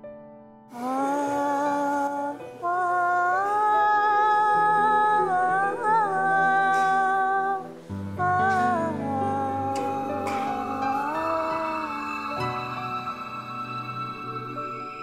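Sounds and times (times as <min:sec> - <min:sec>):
wordless hummed vocal melody: 0:00.7 - 0:13.7.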